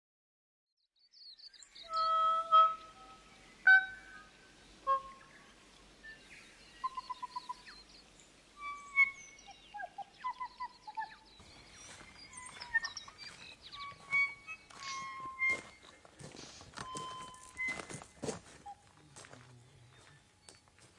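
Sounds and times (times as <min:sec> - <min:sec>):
birdsong whistles and trills: 0:01.0 - 0:20.9
footsteps on bush path: 0:11.3 - 0:20.9.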